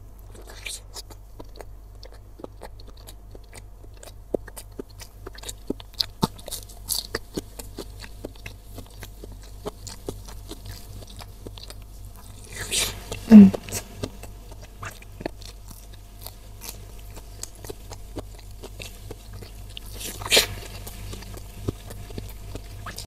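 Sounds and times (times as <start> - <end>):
biting into meatball: 0.2 - 23.0
person chewing with mouth closed: 0.2 - 23.0.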